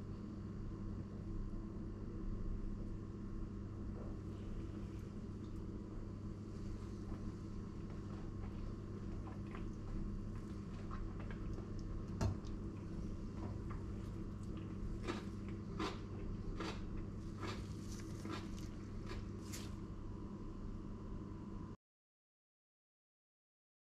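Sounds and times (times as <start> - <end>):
steady low hum: 0.0 - 21.8
crunchy bites of food: 13.7 - 19.8.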